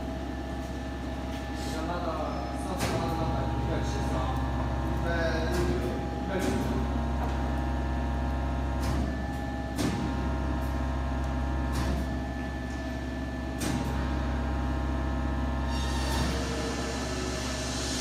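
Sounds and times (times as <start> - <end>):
testing machine humming: 0.0 - 18.0
hiss: 16.4 - 18.0.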